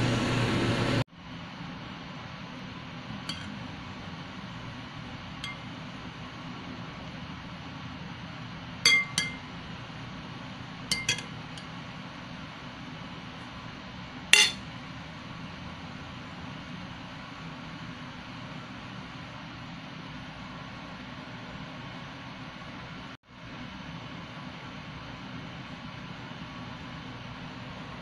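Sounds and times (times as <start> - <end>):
steady low hum: 1.2 - 19.3
spoon clinking against ceramic bowl: 3.3 - 3.5, 5.4 - 5.7, 8.9 - 9.5, 10.9 - 11.3, 14.4 - 14.6.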